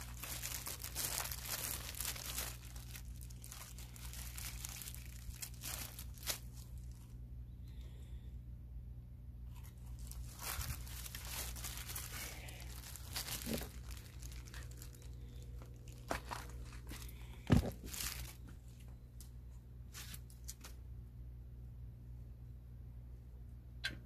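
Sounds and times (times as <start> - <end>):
hands rustling raw meat: 0.0 - 7.2, 9.6 - 19.0.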